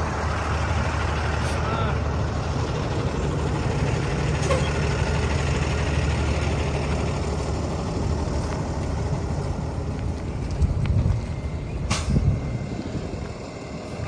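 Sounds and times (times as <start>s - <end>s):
truck engine idling: 0.0s - 14.0s.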